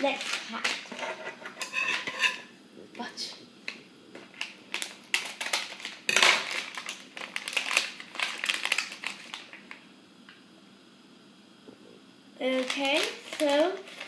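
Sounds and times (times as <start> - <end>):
foil packet crackling: 0.0 - 1.0, 4.2 - 9.8, 12.4 - 14.0.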